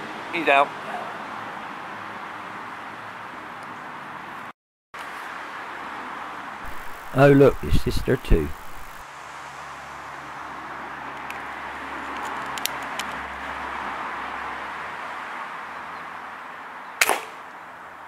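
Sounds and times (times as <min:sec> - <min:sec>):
background hiss: 0:06.6 - 0:09.5
air rifle shot: 0:17.0 - 0:17.4.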